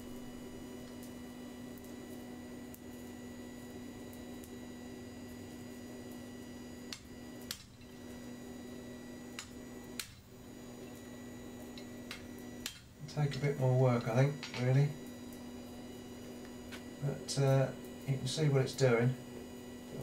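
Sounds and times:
electrical hum: 0.0 - 20.0.

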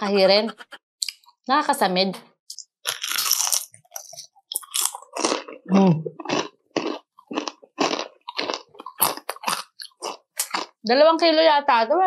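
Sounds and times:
crunchy chewing of fried chicken: 2.8 - 10.8.

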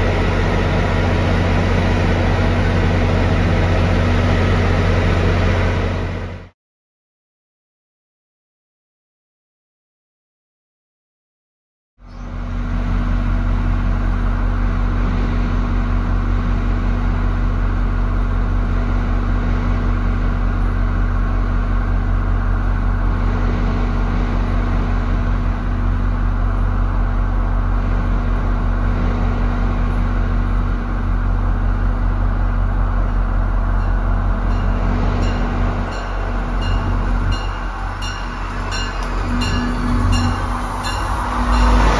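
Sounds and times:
diesel train engine idling: 0.0 - 6.5, 12.1 - 41.9
train bell ringing: 33.0 - 41.9.

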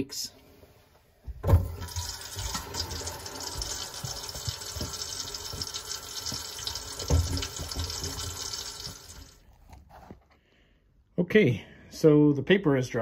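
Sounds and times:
faucet running into sink: 1.5 - 9.4.

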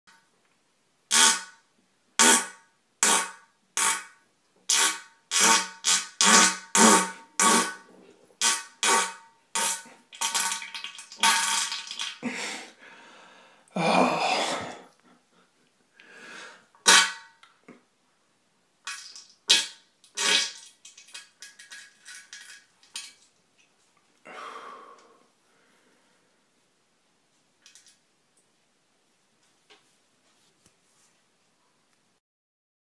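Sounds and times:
person retching and vomiting: 4.7 - 12.7, 13.7 - 14.9, 16.8 - 17.9, 18.9 - 21.2.

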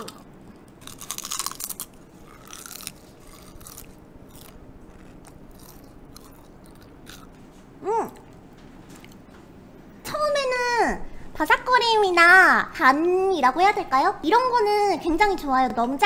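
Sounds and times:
crunching chip being chewed: 0.0 - 7.4.

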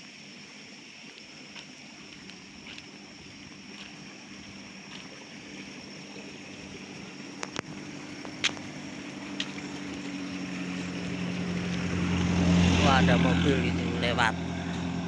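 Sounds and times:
car engine hum approaching: 0.0 - 15.0.

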